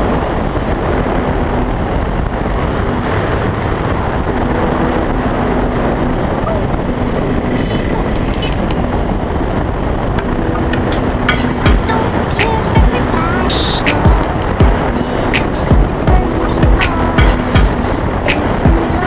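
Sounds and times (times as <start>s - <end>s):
wind on microphone: 0.0s - 19.0s
motorcycle engine running: 15.6s - 17.8s.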